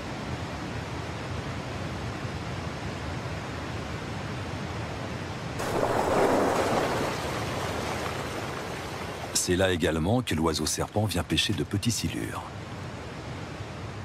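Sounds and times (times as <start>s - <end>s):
water rushing over rapids: 5.6s - 9.6s.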